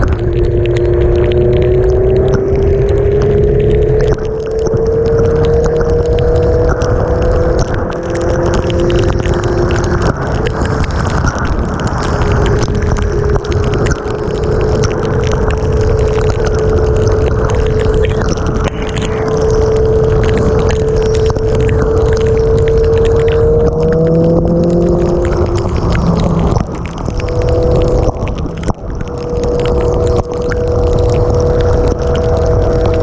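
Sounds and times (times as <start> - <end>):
raindrop ticks on camera: 0.0 - 33.0
wind rush on microphone: 0.0 - 33.0
motorcycle engine cruising: 0.4 - 10.8, 16.6 - 28.6.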